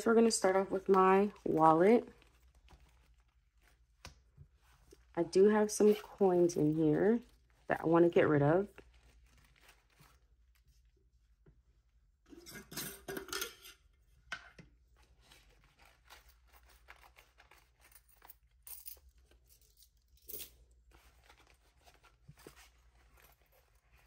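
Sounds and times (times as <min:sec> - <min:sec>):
paper bills crinkling: 0:08.6 - 0:10.8, 0:15.0 - 0:18.6
coins clinking: 0:17.8 - 0:20.6.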